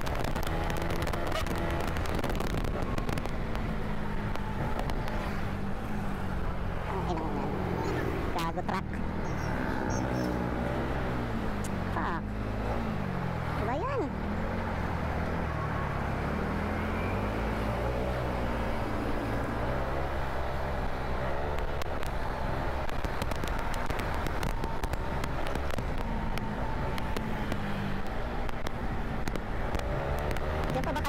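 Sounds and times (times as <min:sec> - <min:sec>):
sharp crackles: 0:00.0 - 0:06.2, 0:20.8 - 0:31.0
road and wind noise: 0:00.0 - 0:31.0.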